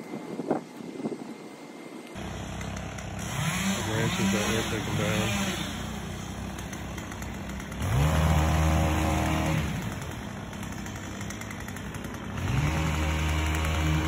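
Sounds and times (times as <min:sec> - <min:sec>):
petrol engine revving: 0:02.2 - 0:14.0.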